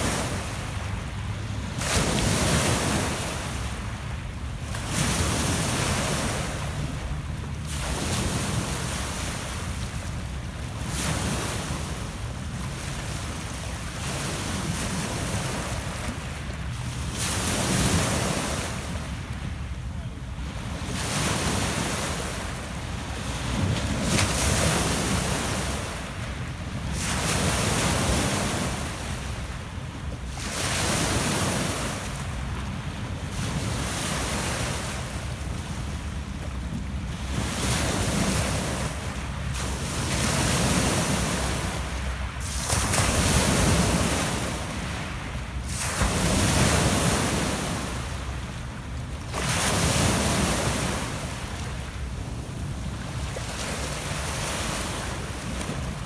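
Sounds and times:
waves washing up pebble beach: 0.0s - 9.9s, 20.8s - 32.5s, 37.2s - 48.4s.

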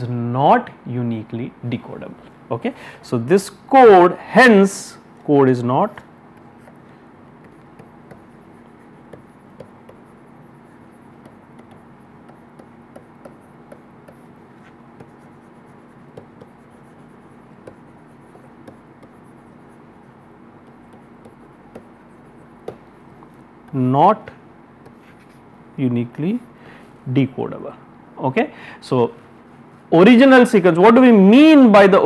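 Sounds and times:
low hum and hiss: 0.0s - 32.0s
stylus tapping on screen: 6.3s - 19.9s, 20.6s - 23.8s.

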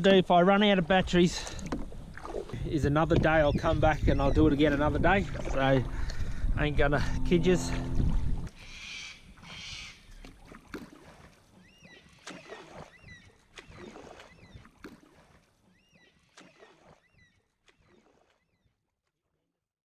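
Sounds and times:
faint water splashes: 0.0s - 19.3s
bird chirping: 11.6s - 14.7s.

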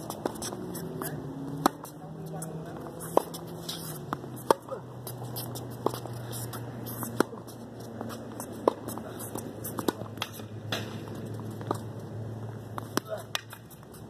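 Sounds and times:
tennis ball struck by rackets: 1.5s - 11.8s.

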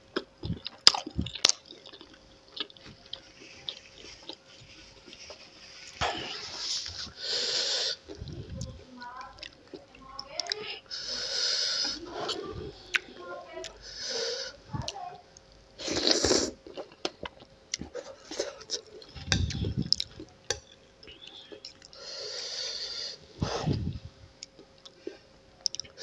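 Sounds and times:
person slurping and chewing noodles: 0.1s - 8.6s, 15.8s - 20.6s.

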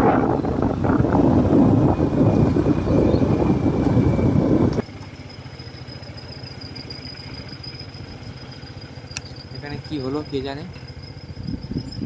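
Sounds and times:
wind buffeting microphone: 0.0s - 4.8s, 11.2s - 12.0s
motorcycle riding: 0.0s - 12.0s
motorcycle engine idling: 0.1s - 12.0s.

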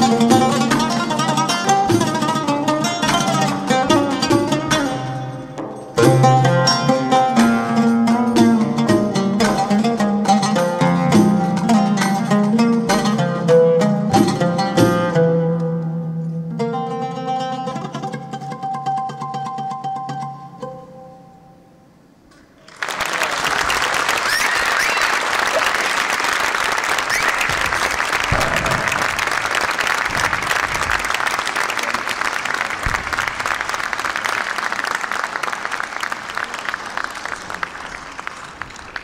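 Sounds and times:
oud plucked note: 0.0s - 21.6s, 27.6s - 31.2s
audience applause: 22.6s - 39.0s.

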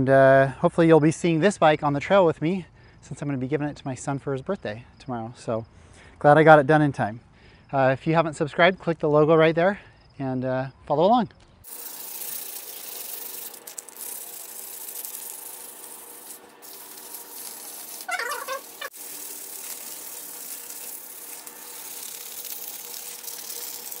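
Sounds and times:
sandpaper rubbing: 11.7s - 24.0s
short chirping squeak: 18.0s - 19.0s.

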